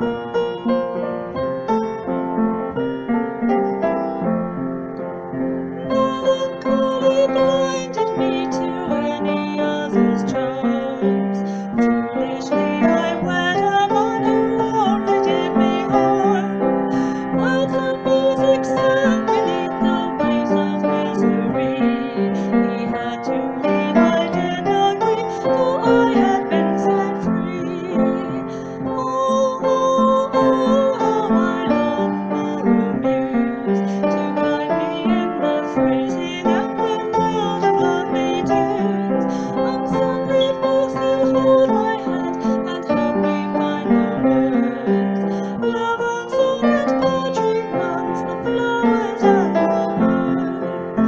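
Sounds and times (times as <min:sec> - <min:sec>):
keyboard melody over chords: 0:00.0 - 0:09.3
piano accompaniment: 0:00.0 - 0:51.0.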